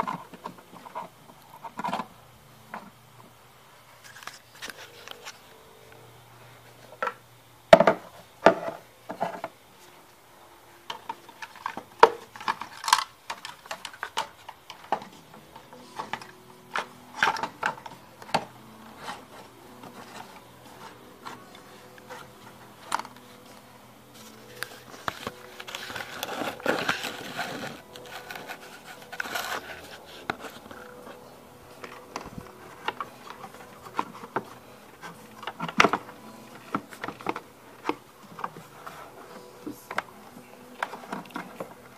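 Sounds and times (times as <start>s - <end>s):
plastic parts clicking and knocking: 7.0s - 9.5s, 10.9s - 21.4s, 31.8s - 40.1s
plastic rubbing and scraping: 10.9s - 41.9s.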